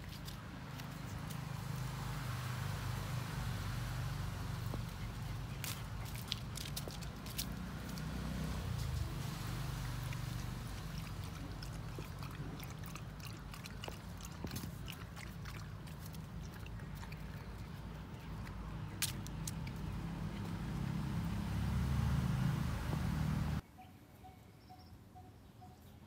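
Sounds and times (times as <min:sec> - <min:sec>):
puppy claws clicking on concrete: 0:04.8 - 0:08.2, 0:10.0 - 0:20.6.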